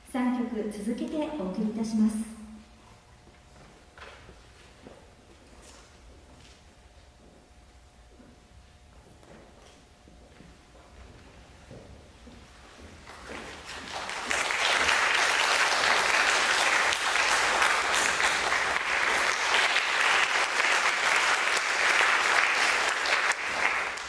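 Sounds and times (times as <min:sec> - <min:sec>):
audience applauding: 0:13.1 - 0:24.0.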